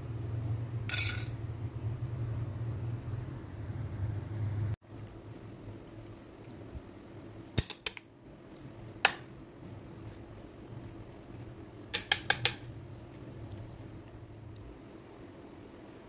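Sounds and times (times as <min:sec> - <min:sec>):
chopsticks tapping a plate: 0:11.9 - 0:12.8.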